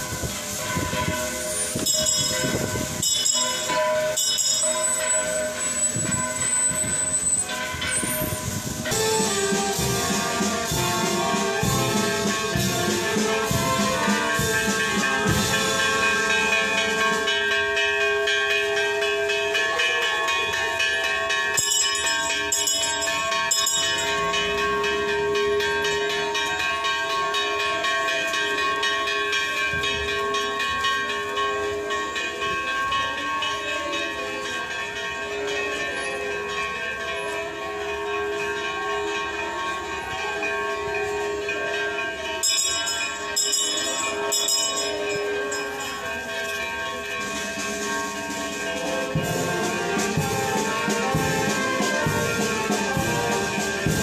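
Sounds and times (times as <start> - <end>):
high jingling or clattering: 0.0 - 17.8
church bells ringing: 0.0 - 54.0.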